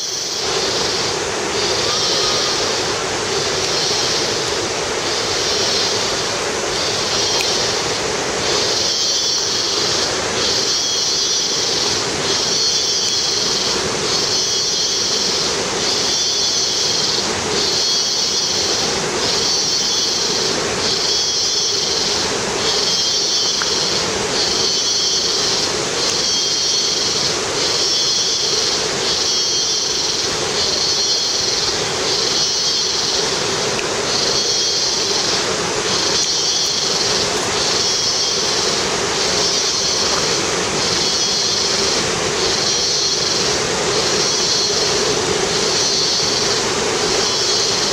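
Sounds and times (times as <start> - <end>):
insects buzzing high-pitched: 0.0 - 47.9
steady rushing noise: 0.0 - 47.9.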